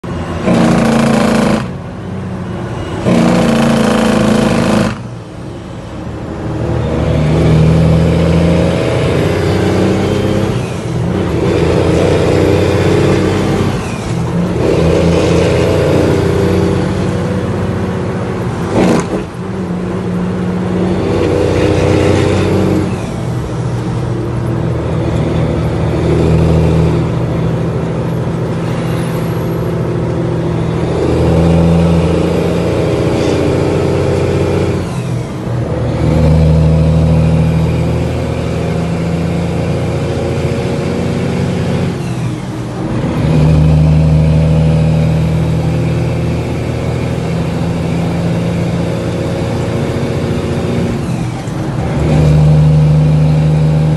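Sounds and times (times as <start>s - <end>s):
truck diesel engine revving: 0.0s - 53.9s
loud rushing bursts: 0.3s - 1.8s, 3.0s - 5.1s.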